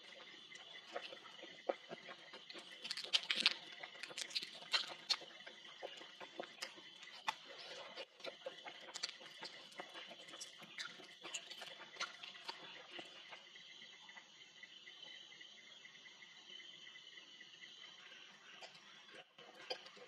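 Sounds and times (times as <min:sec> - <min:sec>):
night insects chirring: 0:00.0 - 0:20.0
lip smacks: 0:00.9 - 0:12.6
meat torn off bone: 0:02.8 - 0:05.2.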